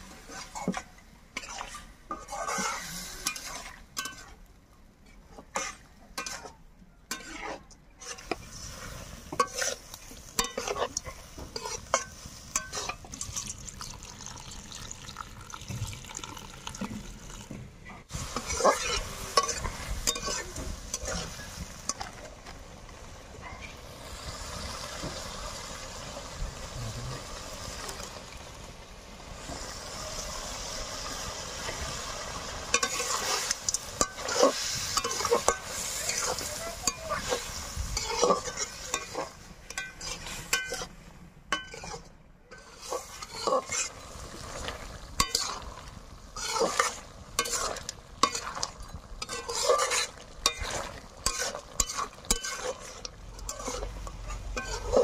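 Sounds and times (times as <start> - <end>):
meat sizzling in a pan: 1.4 - 4.3, 7.2 - 17.5, 18.1 - 40.8, 42.5 - 55.0
wooden spatula scraping pan: 1.4 - 4.3, 5.4 - 13.4, 18.3 - 22.6, 32.7 - 41.0, 41.6 - 55.0.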